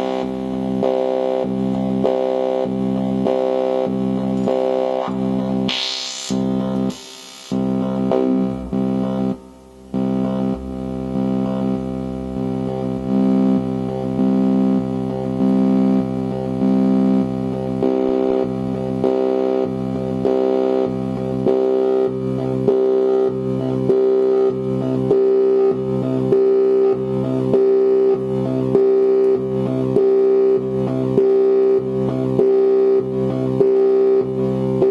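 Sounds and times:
synthesizer tone: 0:00.0 - 0:13.6.

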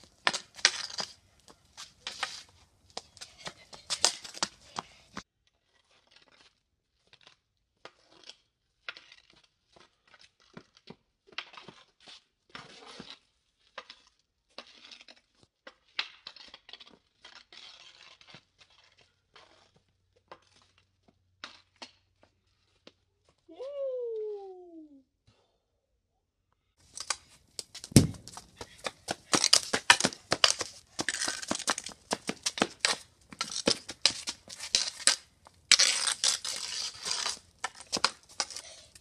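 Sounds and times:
hockey stick tapping on concrete: 0:27.0 - 0:36.1.

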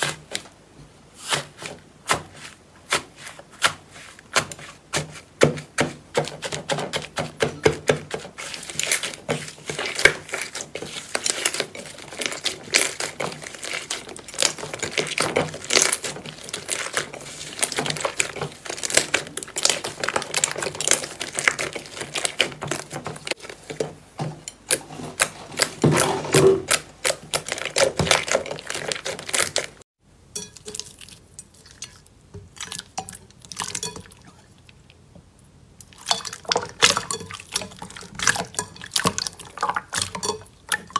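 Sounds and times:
slime squeezed by hands: 0:25.2 - 0:29.8.

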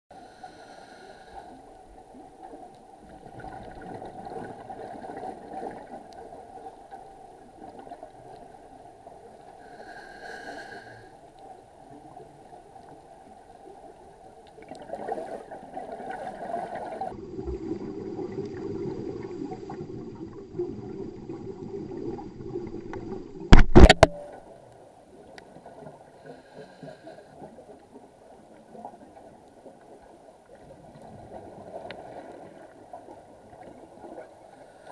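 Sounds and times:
sharp knocks on camera housing: 0:23.6 - 0:24.2.

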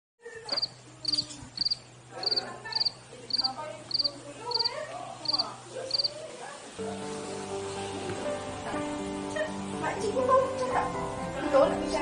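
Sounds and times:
cricket chirping: 0:00.2 - 0:06.2
faint voices: 0:00.2 - 0:07.6.

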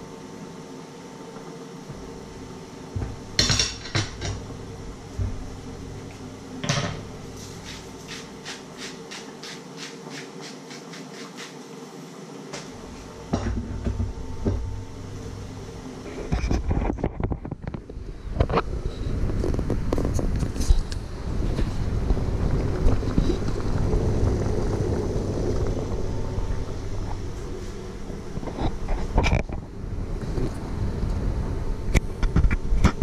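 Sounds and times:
low rumbling knocks: 0:02.9 - 0:03.4, 0:04.4 - 0:05.9.

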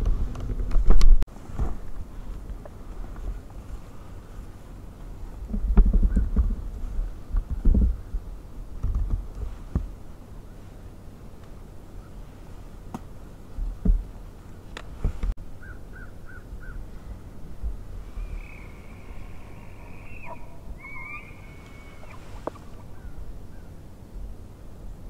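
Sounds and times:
elk bugling whistle: 0:18.1 - 0:22.5.

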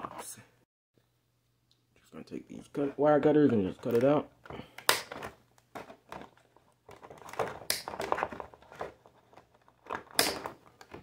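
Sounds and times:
plastic packaging crinkling: 0:05.0 - 0:11.0.

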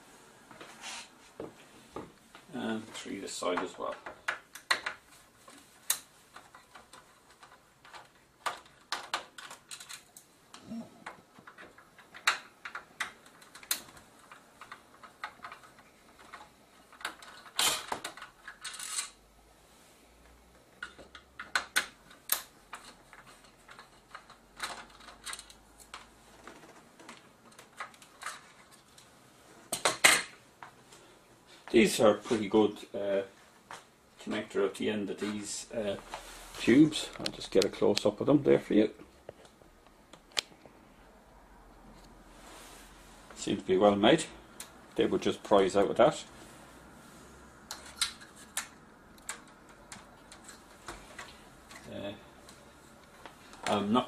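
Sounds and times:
metal parts rattling: 0:16.2 - 0:19.2.

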